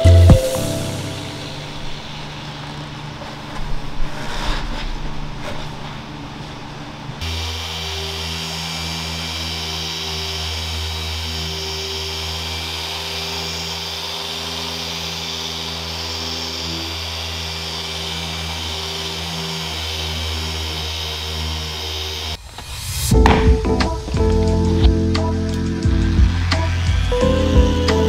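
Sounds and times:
electric polisher motor hum: 0.0s - 3.6s, 7.2s - 28.0s.

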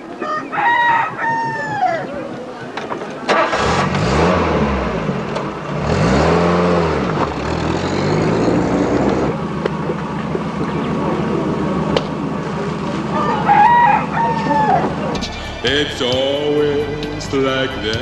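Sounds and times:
car engine revving: 3.3s - 13.1s.

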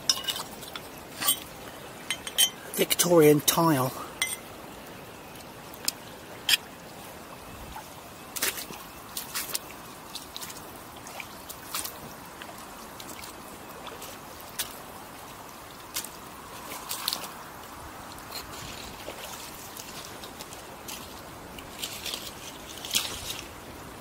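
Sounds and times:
river rushing: 0.0s - 24.0s
water splashes: 0.0s - 24.0s
boots wading through water: 5.3s - 24.0s.

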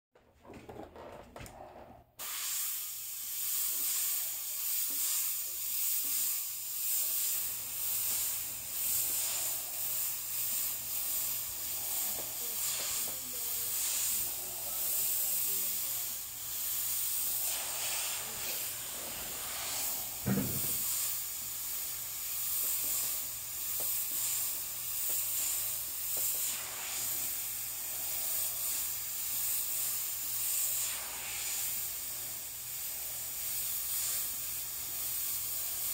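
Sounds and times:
airbrush hissing: 2.2s - 35.9s
low thump: 20.2s - 20.8s.

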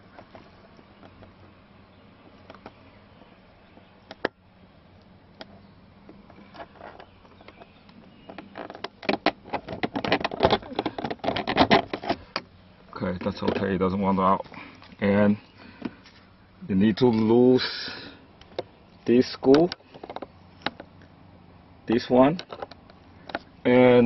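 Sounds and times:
plastic dashboard trim clicking: 6.4s - 12.5s.

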